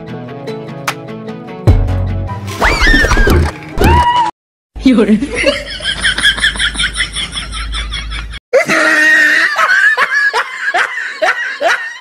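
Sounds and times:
person laughing: 5.3s - 12.0s.

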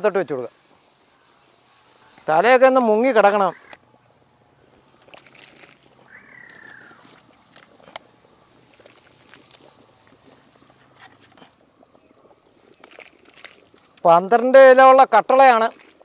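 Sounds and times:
curry boiling: 0.0s - 16.0s
animal call falling in pitch: 6.1s - 7.2s.

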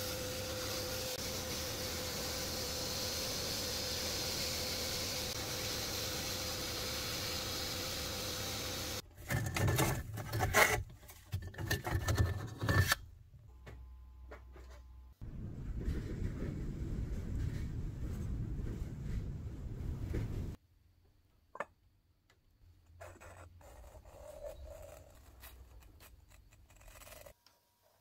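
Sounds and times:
sandblaster hissing: 0.0s - 9.0s
metal parts knocking and scraping: 9.2s - 13.0s.

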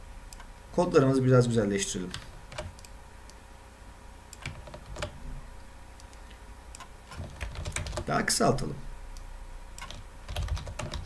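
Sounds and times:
faint steady hum: 0.0s - 11.0s
computer keyboard and mouse clicks: 2.1s - 3.0s, 4.3s - 5.2s, 6.0s - 8.1s, 9.8s - 11.0s.

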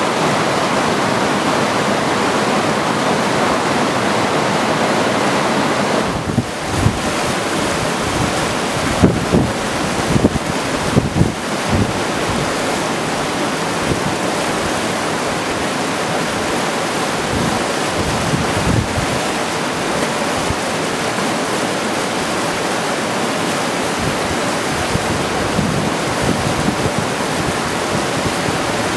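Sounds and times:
creek rushing over rocks: 0.0s - 28.9s
wind buffeting microphone: 6.0s - 12.6s, 17.2s - 19.4s, 24.0s - 28.9s.

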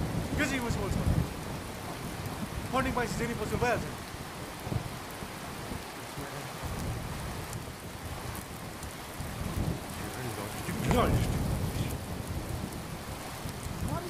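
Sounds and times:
rain falling: 0.0s - 14.0s
low rumble: 9.3s - 14.0s.

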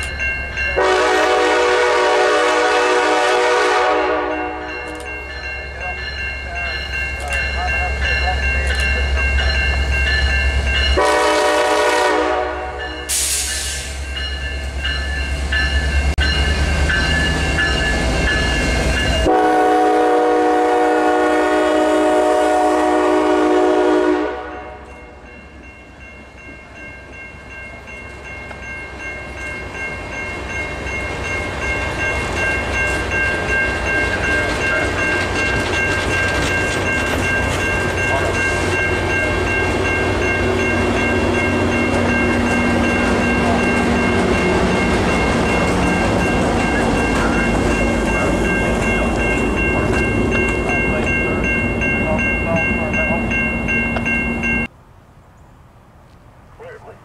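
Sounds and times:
locomotive rumbling past: 0.0s - 57.0s
train coaches rolling past: 0.0s - 57.0s
train horn blasts: 0.8s - 4.9s, 11.0s - 13.3s, 19.2s - 24.9s.

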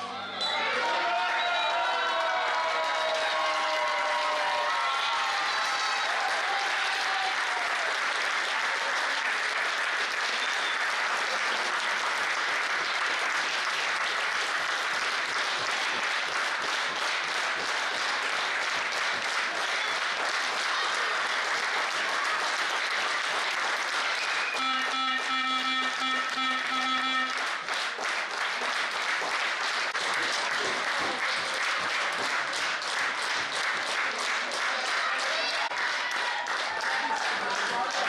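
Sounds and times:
crowd applauding: 0.8s - 38.0s.

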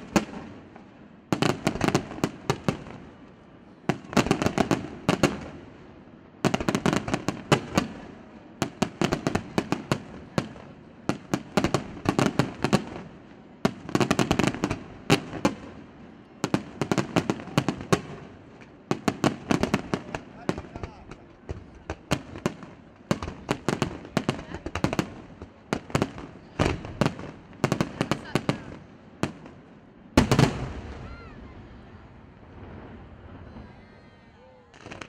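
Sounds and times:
firework shells bursting: 34.7s - 35.0s.

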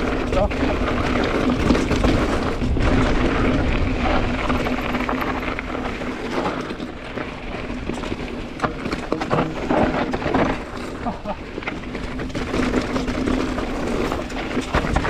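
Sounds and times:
wind rumble on microphone: 0.0s - 8.5s
bike rattles and knocks: 0.0s - 15.0s
bike tyres rolling over dirt: 0.0s - 15.0s.

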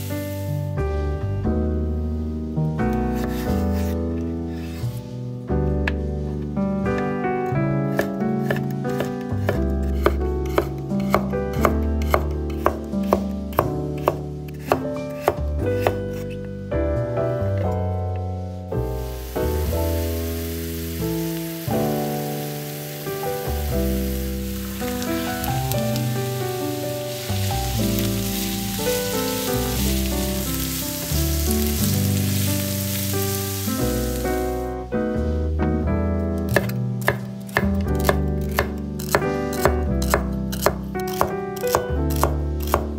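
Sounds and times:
vegetables sizzling in hot oil: 0.0s - 0.4s, 19.0s - 34.7s
background music: 0.0s - 42.9s
knife slicing carrot on cutting board: 3.2s - 4.0s, 7.9s - 11.3s, 12.0s - 16.4s.

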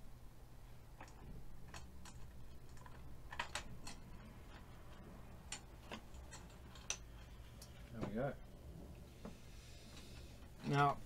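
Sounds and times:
low steady hum: 0.0s - 11.0s
sharp clicks and knocks: 1.0s - 8.2s.

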